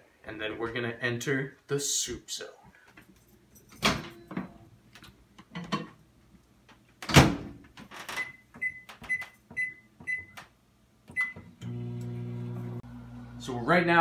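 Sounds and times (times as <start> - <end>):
short keypad beeps: 8.2 - 10.4.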